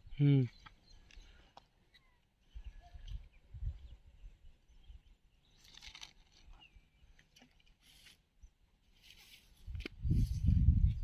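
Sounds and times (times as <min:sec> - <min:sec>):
wind rumble on microphone: 0:02.6 - 0:04.5, 0:09.6 - 0:11.0.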